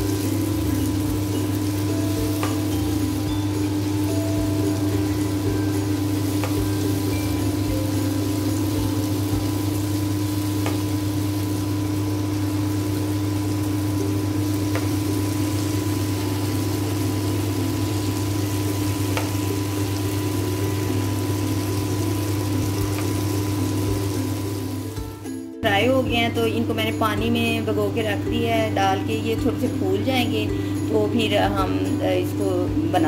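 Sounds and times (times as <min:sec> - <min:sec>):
fritters sizzling in hot oil: 0:00.0 - 0:25.0.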